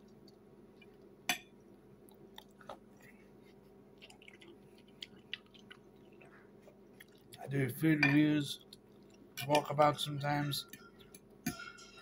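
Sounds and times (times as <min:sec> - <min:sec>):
faint chewing: 0:00.0 - 0:07.5, 0:08.5 - 0:09.4
low room hum: 0:00.0 - 0:12.0.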